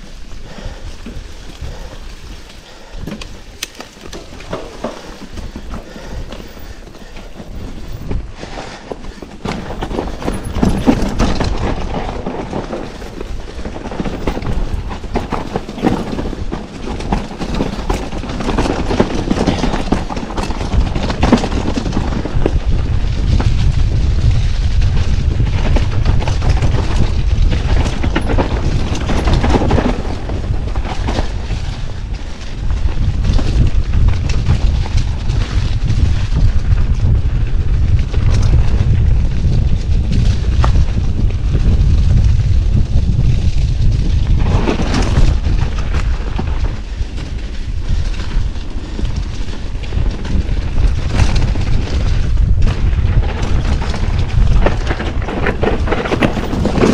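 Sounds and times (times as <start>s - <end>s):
bike rattling over bumps: 0.0s - 56.9s
bike tyres rolling over dirt: 0.0s - 56.9s.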